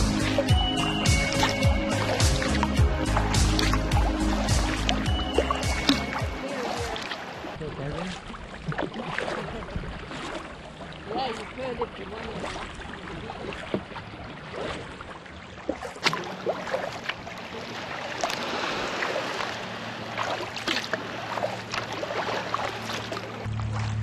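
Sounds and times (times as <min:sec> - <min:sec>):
sharp splash or knock: 0:00.0 - 0:07.2, 0:15.7 - 0:17.2, 0:20.2 - 0:24.0
paddle splashes and drips: 0:00.0 - 0:24.0
water lapping on hull: 0:00.0 - 0:24.0.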